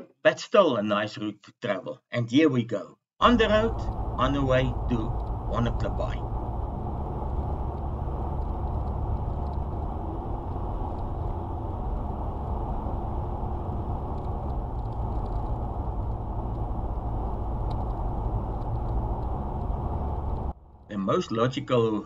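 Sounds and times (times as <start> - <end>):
car rumbling on gravel: 3.2 - 20.8
faint ticks: 5.1 - 6.6, 7.2 - 20.5.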